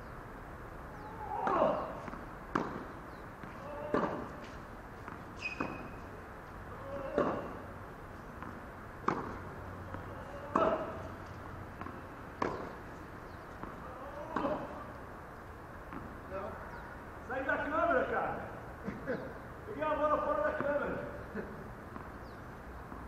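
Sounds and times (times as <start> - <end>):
tennis ball struck by rackets: 1.3 - 6.1, 6.8 - 7.7, 8.3 - 15.0, 15.8 - 16.3.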